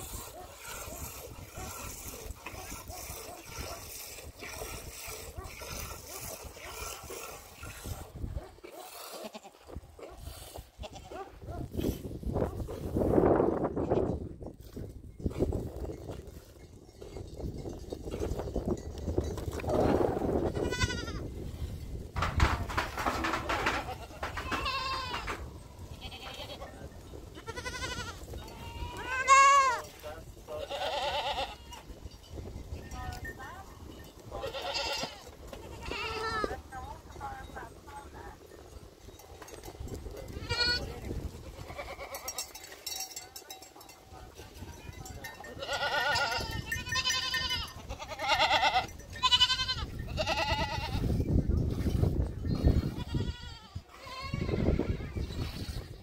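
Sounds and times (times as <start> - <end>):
goats bleating: 9.1 - 9.7, 10.8 - 11.2, 20.5 - 21.2, 23.7 - 26.7, 27.4 - 29.9, 30.6 - 31.9, 34.4 - 36.6, 40.4 - 42.5, 45.5 - 51.1, 52.7 - 55.2
low rustling and knocking: 22.2 - 25.5.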